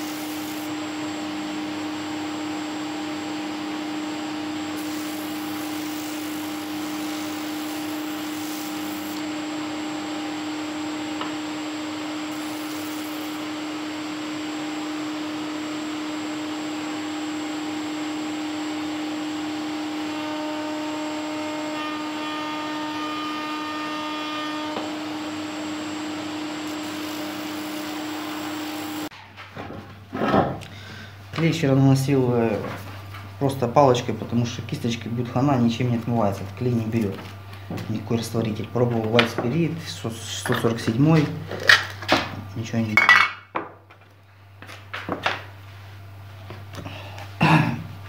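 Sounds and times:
higher whine: 0.0 - 29.1
sander motor hum: 0.0 - 29.1.

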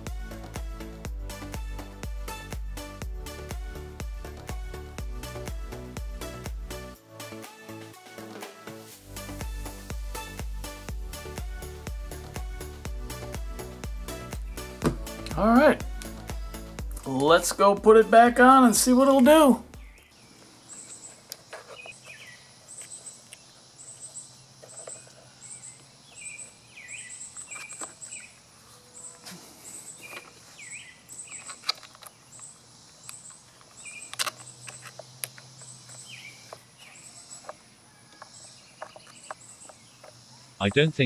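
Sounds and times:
insect chirping: 9.7 - 14.8, 19.6 - 41.0
bird calls: 14.1 - 15.2, 18.9 - 41.0
screwdriver clicks and taps: 31.4 - 36.6.

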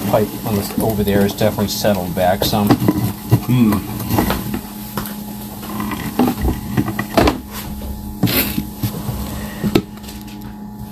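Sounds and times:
steady electrical hum: 0.0 - 10.9
camera knocking and scraping in pipe: 2.2 - 4.6, 5.6 - 10.0.

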